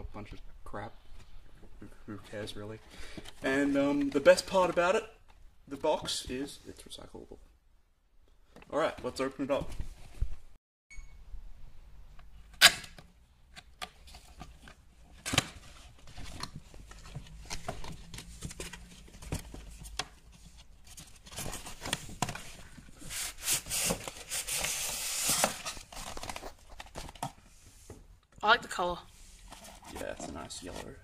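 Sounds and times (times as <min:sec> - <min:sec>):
cardboard rustling and scraping: 0:14.0 - 0:28.0, 0:29.2 - 0:31.0.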